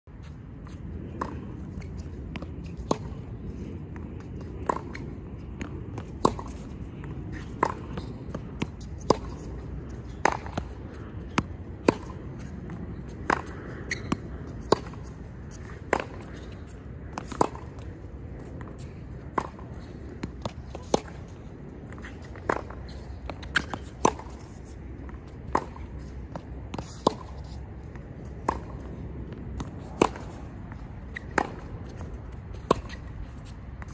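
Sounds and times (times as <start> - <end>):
tennis racket hitting ball: 4.6 - 6.6, 7.3 - 17.8, 22.0 - 24.6, 25.5 - 27.6, 28.3 - 33.2.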